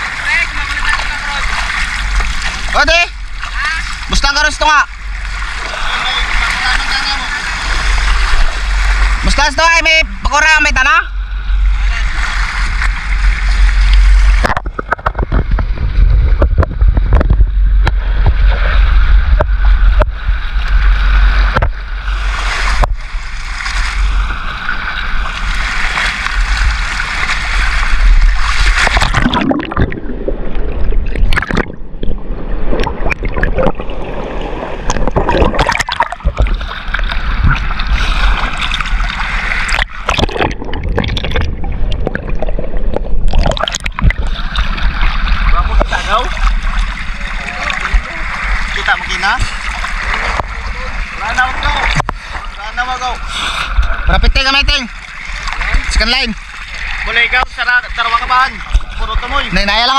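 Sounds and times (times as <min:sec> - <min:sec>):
heavy low rumble: 0:00.0 - 0:25.6
water splashing against boat: 0:00.0 - 0:59.9.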